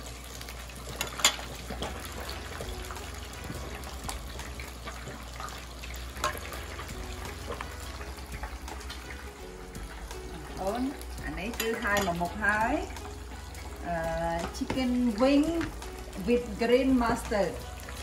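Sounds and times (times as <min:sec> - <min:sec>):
liquid bubbling in pot: 0:00.0 - 0:18.0
utensils clinking on metal pot: 0:00.9 - 0:02.8, 0:04.9 - 0:09.0, 0:10.4 - 0:15.8.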